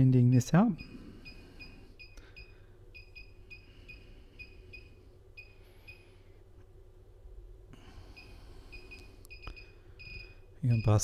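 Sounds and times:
faint low hum: 0.0 - 11.0
high electronic beeps: 8.2 - 11.0.

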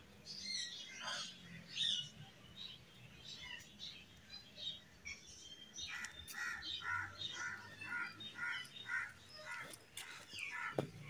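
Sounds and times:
crow cawing: 6.4 - 10.8.

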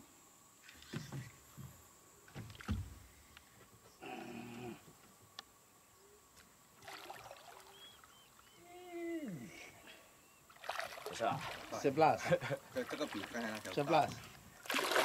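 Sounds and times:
thump against boat: 2.3 - 3.0
fish splashing at water surface: 6.8 - 7.8, 10.5 - 11.8, 14.6 - 15.0.

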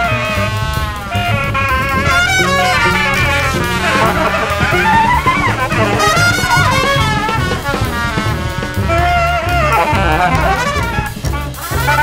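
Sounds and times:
low bass line: 0.0 - 12.0
saxophone: 0.0 - 12.0
trumpet: 0.0 - 12.0.

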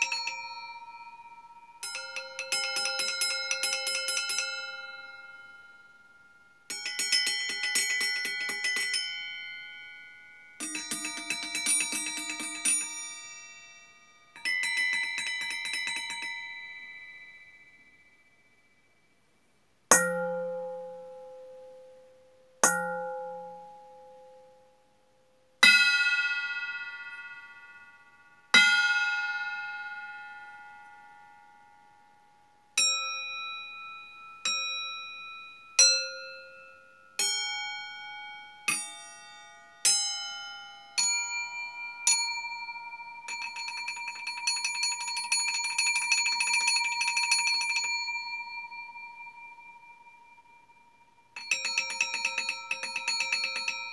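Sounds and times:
metal bowls struck ringing: 38.2 - 53.9.

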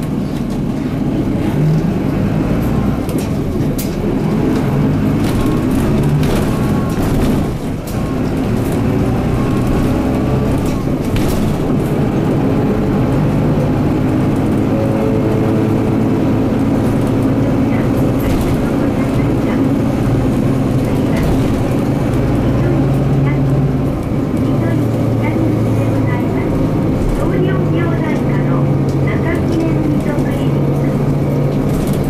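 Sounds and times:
bus diesel engine running: 0.0 - 32.0.

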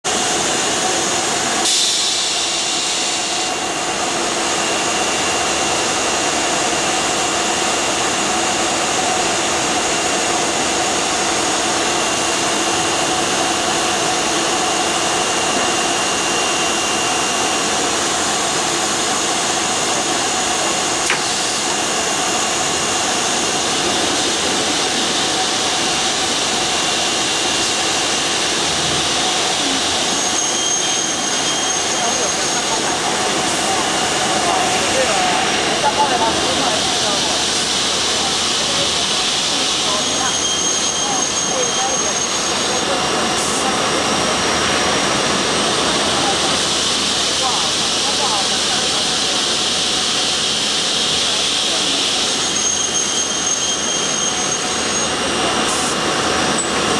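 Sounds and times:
burst of hiss: 1.6 - 3.5.

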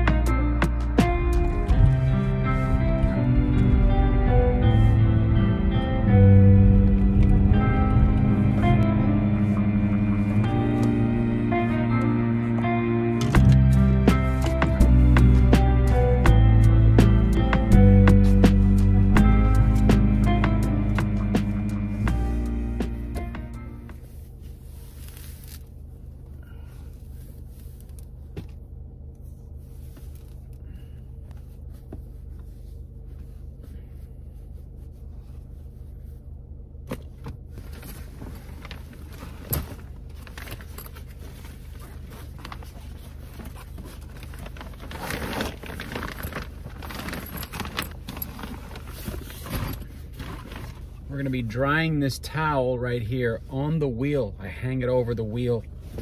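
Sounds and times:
steady low hum: 0.0 - 56.0
clothing rustling: 21.4 - 36.4, 37.1 - 51.6.

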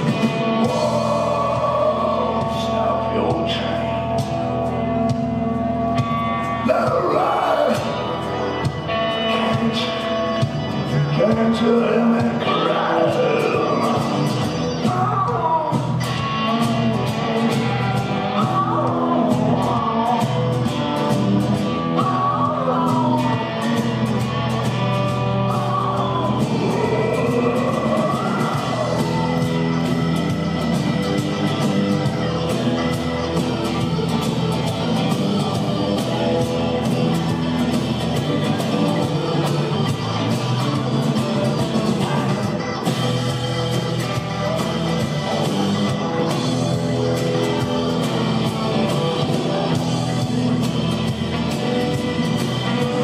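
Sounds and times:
man singing: 0.0 - 4.2, 6.6 - 8.2, 9.1 - 20.6, 21.9 - 24.1, 25.5 - 30.4
blues-rock band playing: 0.0 - 53.0.

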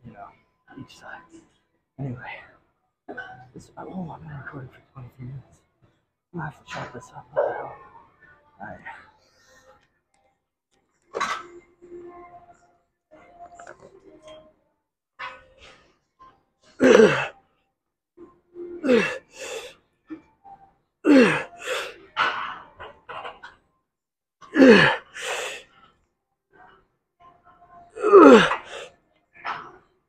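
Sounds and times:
man groaning with strain: 18.8 - 19.2, 21.1 - 21.6, 24.6 - 25.0, 28.0 - 28.7.

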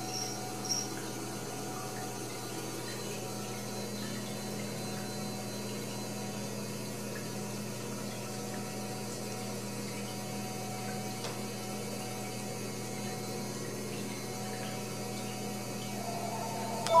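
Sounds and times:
low electrical hum: 0.0 - 17.0
steady tones: 16.0 - 17.0.

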